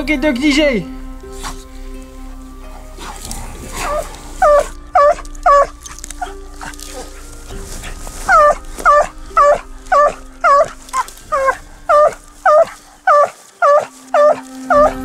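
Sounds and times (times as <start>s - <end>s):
dog barking: 3.8s - 6.3s, 8.3s - 15.0s.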